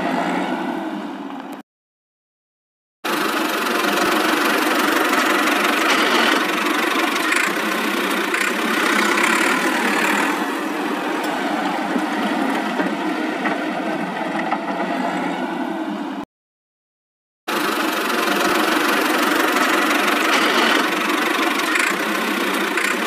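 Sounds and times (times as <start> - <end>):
tractor engine idling: 3.1 - 14.0, 17.5 - 23.0.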